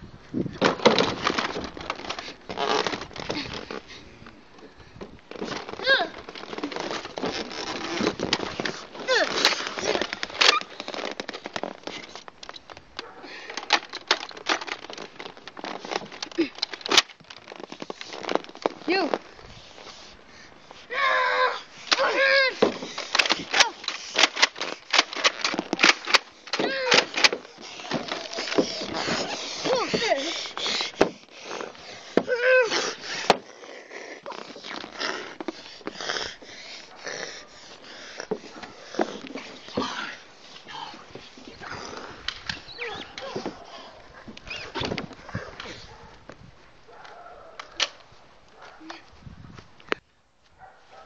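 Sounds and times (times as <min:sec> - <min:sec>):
rustling: 0:00.4 - 0:51.0
child groaning: 0:05.8 - 0:06.2, 0:09.0 - 0:10.2, 0:20.9 - 0:22.8, 0:26.5 - 0:30.6, 0:32.2 - 0:34.4
hoarse breathy rasps: 0:26.4 - 0:46.0.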